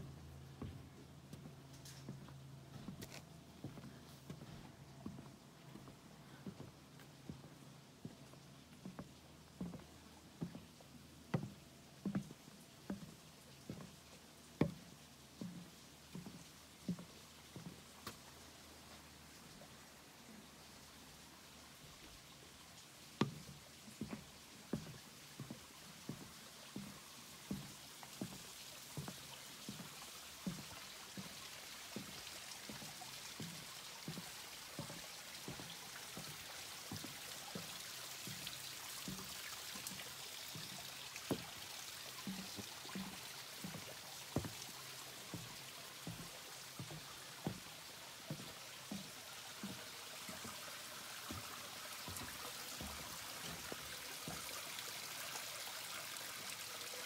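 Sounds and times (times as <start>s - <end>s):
footsteps on wooden boardwalk: 0.0s - 21.1s, 21.7s - 55.6s
creek rushing: 27.0s - 57.0s.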